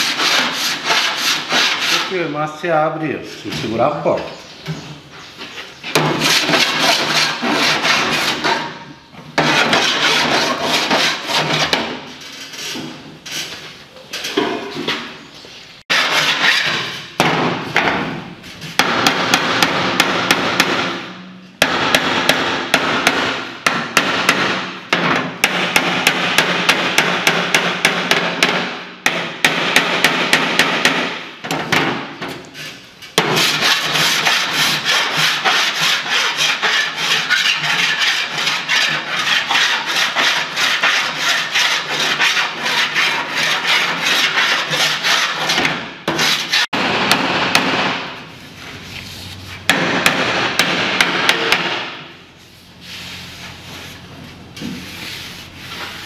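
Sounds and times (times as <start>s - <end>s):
file rasping across metal: 0.0s - 2.2s, 6.2s - 8.8s, 9.4s - 13.4s, 15.9s - 17.0s, 32.6s - 46.7s
hammer blows on sheet steel: 17.2s - 32.3s, 39.7s - 48.2s, 49.6s - 52.2s.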